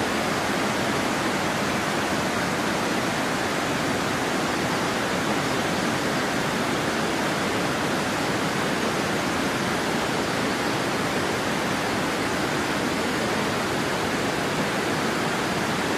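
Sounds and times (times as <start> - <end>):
stream water rushing: 0.0 - 15.9.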